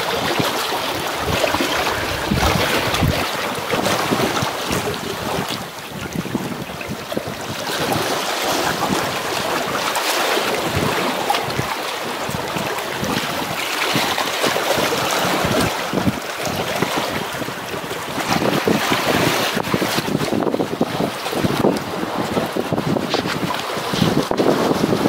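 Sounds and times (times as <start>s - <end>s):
waves washing against concrete: 0.0s - 25.0s
wind buffeting microphone: 0.0s - 25.0s.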